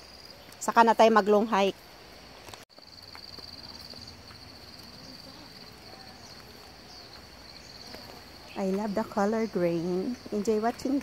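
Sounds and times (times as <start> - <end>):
insects trilling: 2.7 - 11.0.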